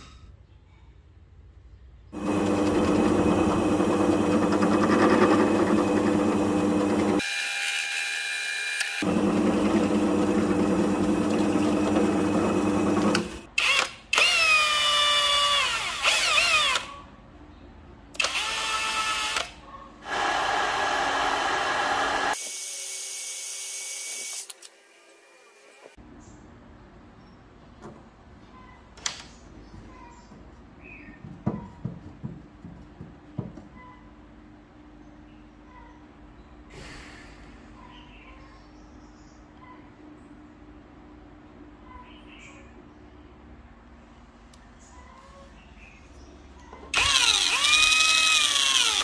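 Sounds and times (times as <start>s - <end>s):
drill press drilling plastic: 2.2s - 7.4s, 8.8s - 14.5s, 47.0s - 49.0s.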